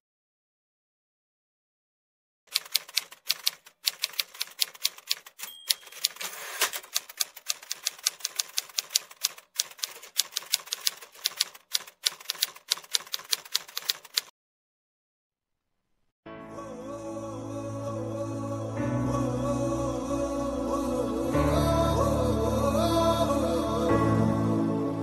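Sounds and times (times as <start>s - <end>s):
typewriter keys clacking: 2.5s - 14.3s.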